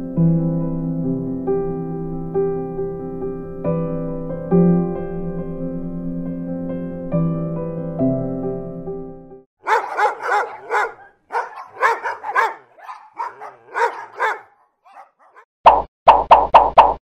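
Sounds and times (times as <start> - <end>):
dog yapping and barking: 9.6 - 15.5.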